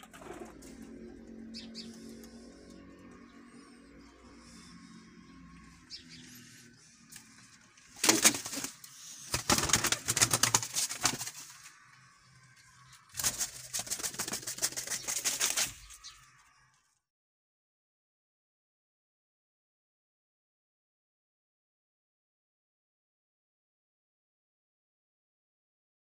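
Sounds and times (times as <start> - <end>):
pigeon wings clattering: 8.0 - 11.6, 13.1 - 16.0.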